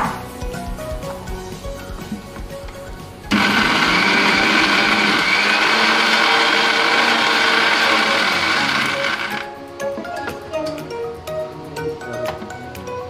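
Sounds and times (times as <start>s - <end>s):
light background music: 0.0s - 13.0s
mixer grinder running: 3.3s - 9.5s.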